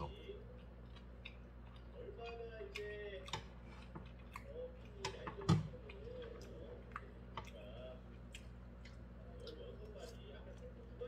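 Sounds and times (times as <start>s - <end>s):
chewing: 0.0s - 11.0s.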